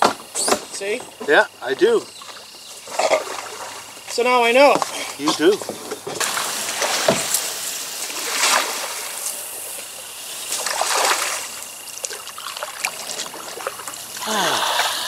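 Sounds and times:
river water trickling and splashing: 0:02.0 - 0:15.0
loud water splashes: 0:06.2 - 0:09.6, 0:10.4 - 0:15.0.

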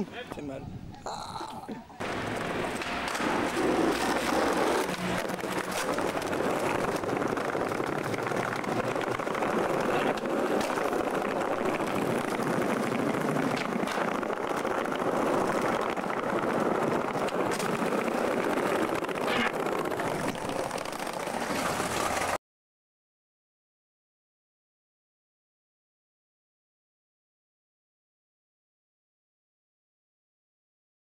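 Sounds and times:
skateboard wheels rolling on pavement: 0:02.0 - 0:22.4.

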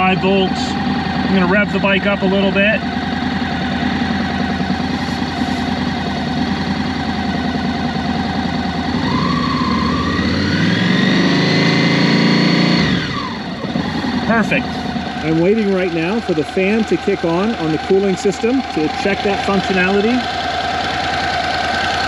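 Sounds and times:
motorcycle engine idling and revving: 0:00.0 - 0:22.0.

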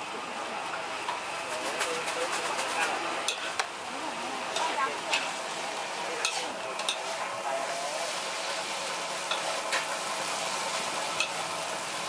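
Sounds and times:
noodles sizzling in a wok: 0:00.0 - 0:12.0.

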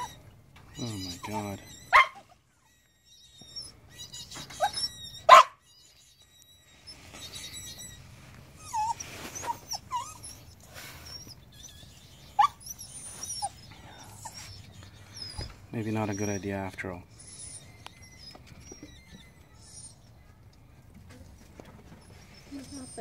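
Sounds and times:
baby rabbit distress squeals: 0:00.0 - 0:20.3.

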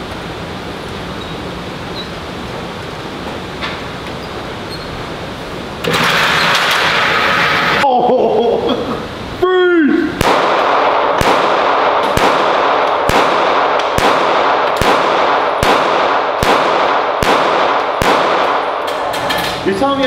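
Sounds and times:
pistol shots echoing indoors: 0:05.8 - 0:07.8, 0:10.2 - 0:19.6.

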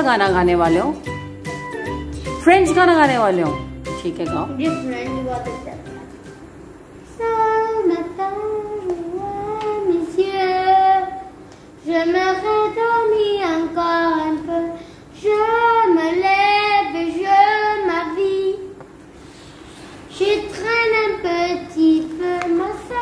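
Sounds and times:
boy singing: 0:07.1 - 0:18.8, 0:20.1 - 0:23.0.

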